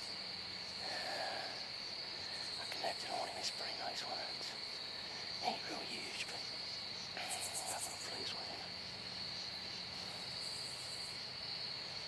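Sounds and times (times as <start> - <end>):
crickets trilling: 0.0 - 12.0
faint whispers: 0.7 - 8.8.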